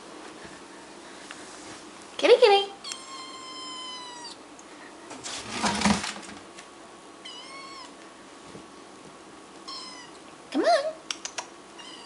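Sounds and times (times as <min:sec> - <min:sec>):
kitten meowing: 0:02.8 - 0:04.4, 0:07.2 - 0:07.9, 0:09.7 - 0:10.2, 0:11.8 - 0:12.0.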